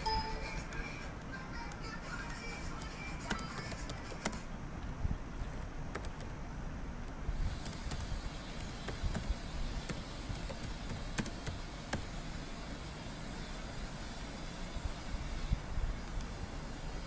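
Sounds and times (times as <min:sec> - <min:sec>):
low background noise: 0:00.0 - 0:17.0
computer keyboard keys clicking: 0:01.7 - 0:04.5, 0:05.9 - 0:06.4, 0:07.0 - 0:09.3, 0:09.9 - 0:12.1.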